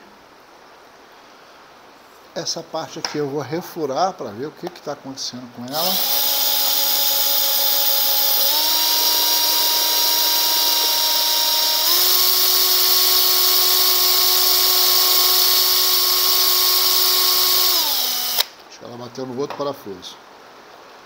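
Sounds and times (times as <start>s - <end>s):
electric drill whining: 5.7s - 18.5s.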